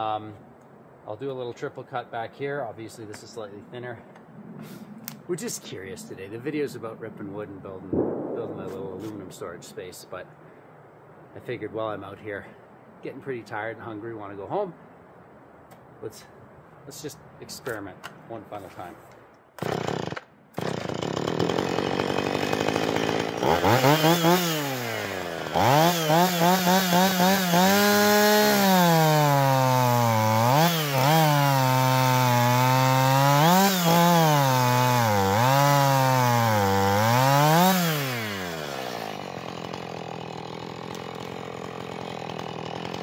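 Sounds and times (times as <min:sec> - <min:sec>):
chainsaw cutting log: 0:19.6 - 0:43.0.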